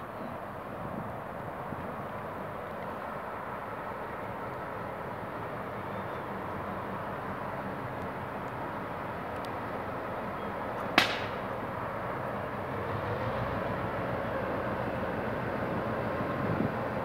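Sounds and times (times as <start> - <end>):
diesel locomotive engine rumble: 0.0 - 17.0
rail noise: 0.0 - 17.0
sharp crack: 10.9 - 11.6.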